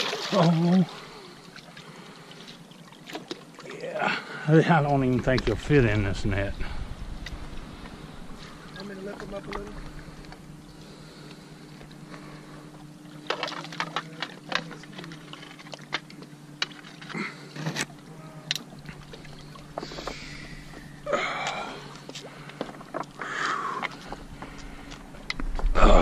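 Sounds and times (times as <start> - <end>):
water splashing and dripping: 0.0 - 3.9.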